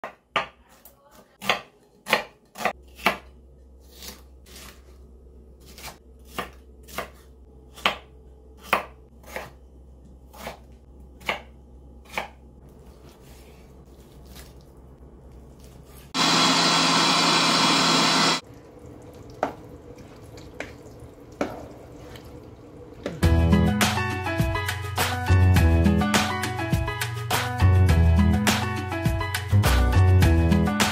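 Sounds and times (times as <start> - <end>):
knife chopping on cutting board: 0.0 - 4.9, 5.6 - 9.6, 10.3 - 12.4.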